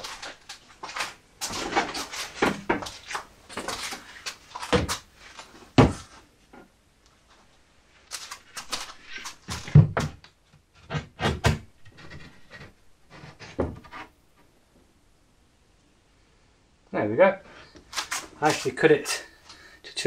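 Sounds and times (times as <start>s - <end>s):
rustling: 0.0s - 9.8s, 17.5s - 19.7s.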